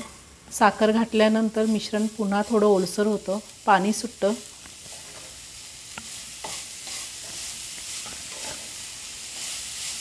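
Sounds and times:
carrots sizzling in a pan: 0:00.0 - 0:10.0
spatula scraping metal pan: 0:06.0 - 0:08.8.

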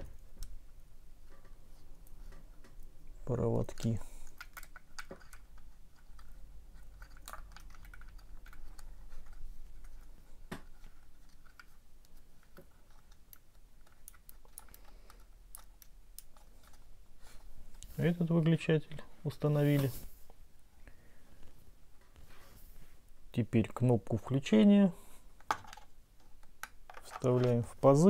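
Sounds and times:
plastic and wires clicking: 0:03.6 - 0:16.9, 0:25.4 - 0:28.0.

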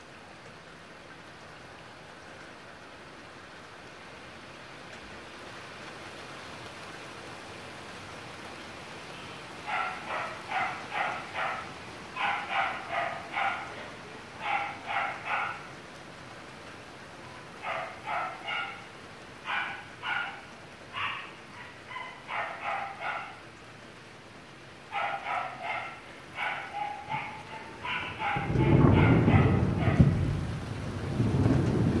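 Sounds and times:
heavy rain falling: 0:00.0 - 0:32.0
dog barking: 0:09.6 - 0:15.7, 0:17.6 - 0:23.4, 0:24.9 - 0:30.2.

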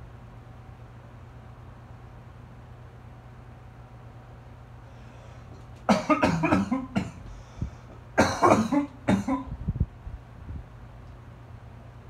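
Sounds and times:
fan humming: 0:00.0 - 0:12.0
person coughing: 0:05.9 - 0:07.3, 0:08.2 - 0:09.5.

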